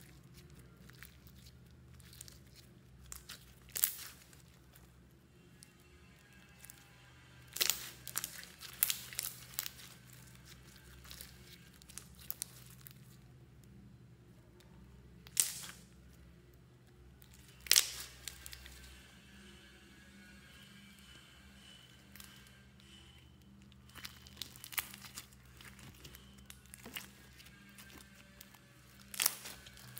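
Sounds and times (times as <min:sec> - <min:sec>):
slime popping and crackling: 0:00.0 - 0:04.8, 0:07.4 - 0:13.2, 0:15.2 - 0:15.9, 0:17.2 - 0:18.9, 0:23.7 - 0:29.9
slime kneading: 0:00.0 - 0:05.0, 0:07.4 - 0:13.3, 0:17.2 - 0:18.9, 0:23.6 - 0:29.9.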